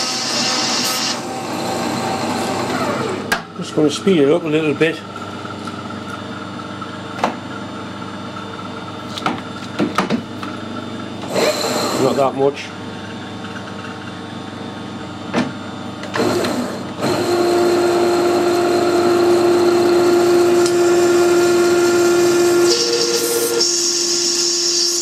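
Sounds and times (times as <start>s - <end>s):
tool cutting metal hiss: 0.0s - 1.2s, 22.6s - 25.0s
metal lathe humming: 10.9s - 15.0s, 15.8s - 25.0s.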